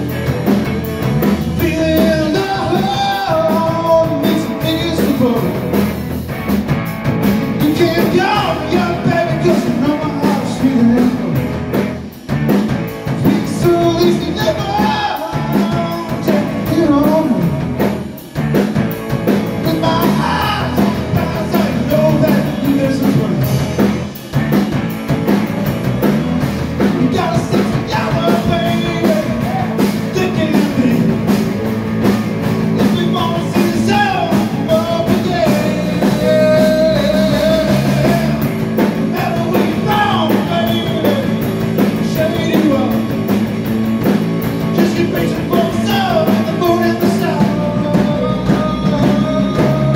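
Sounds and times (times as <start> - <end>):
drum kit: 0.0 - 49.9
electric guitar: 0.0 - 49.9
man singing into microphone: 1.6 - 5.6, 7.6 - 11.4, 13.2 - 17.6, 19.6 - 23.6, 26.9 - 31.2, 32.7 - 43.2, 44.7 - 49.9.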